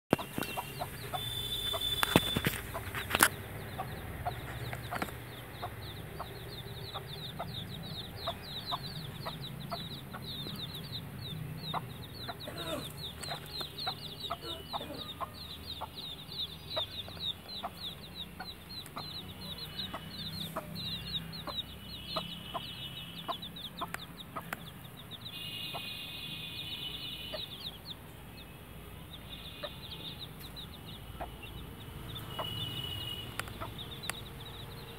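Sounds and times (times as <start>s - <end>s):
hen clucking: 0.1s - 11.0s, 11.6s - 25.1s
chicks peeping: 0.1s - 34.9s.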